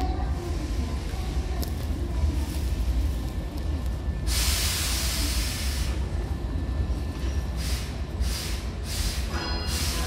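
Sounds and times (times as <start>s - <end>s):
steady low rumble: 0.0s - 10.0s
compressed air hissing: 4.3s - 6.0s, 7.6s - 10.0s.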